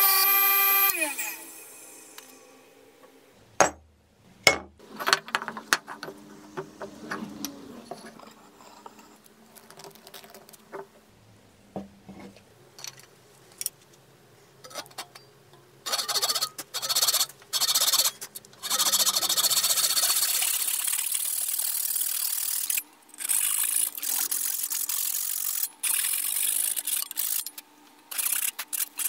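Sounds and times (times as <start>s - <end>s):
harsh rasping noise: 15.9s - 27.5s.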